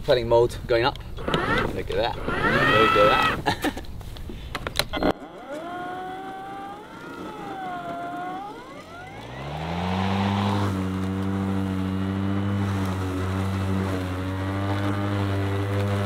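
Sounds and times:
electric mower motor whining: 1.2 - 3.5, 4.9 - 16.0.

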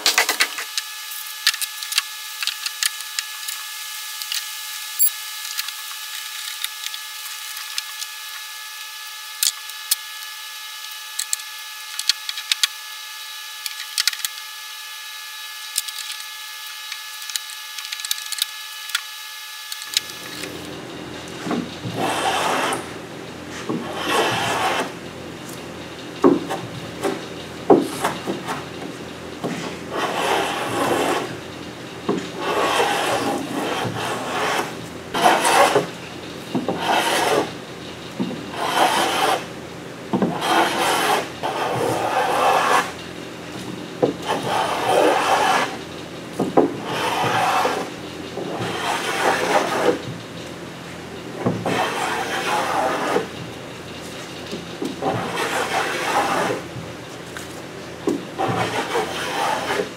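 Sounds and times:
steady high hum: 0.0 - 59.9
hand rasp filing wood: 21.9 - 25.0, 29.6 - 31.4, 32.1 - 35.9, 36.6 - 37.6, 38.5 - 39.5, 40.2 - 43.0, 44.2 - 45.8, 46.8 - 50.0, 51.4 - 53.3, 55.0 - 56.7, 58.3 - 59.9.

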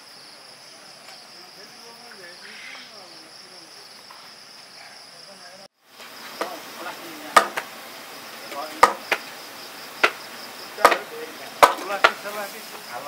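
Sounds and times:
insects chirring: 0.0 - 13.0
blade chopping raw meat: 7.4 - 7.7, 8.8 - 9.2.

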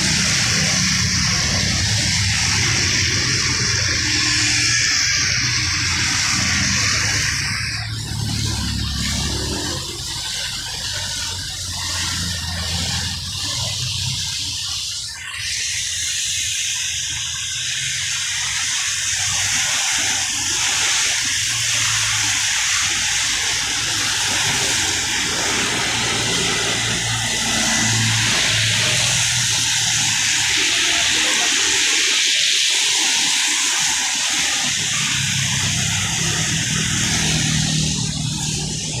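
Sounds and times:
passing vehicle engines: 0.0 - 14.5, 23.3 - 31.8, 34.6 - 39.0
tyres hissing through water: 0.0 - 39.0.

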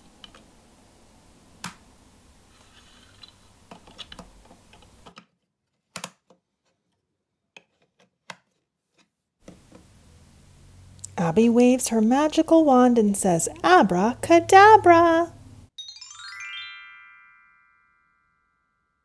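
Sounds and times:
plastic toy bricks clicking: 2.7 - 6.4.

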